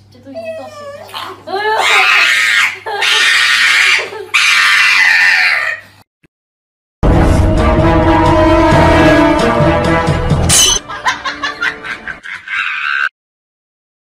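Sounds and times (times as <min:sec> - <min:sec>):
loud screaming cries: 0:01.7 - 0:06.0, 0:12.2 - 0:13.1
music: 0:07.0 - 0:12.2.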